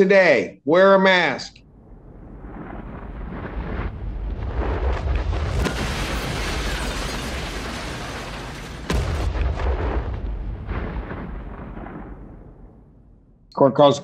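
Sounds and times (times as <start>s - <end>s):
deep booming rumble: 1.7s - 6.9s, 8.9s - 13.4s.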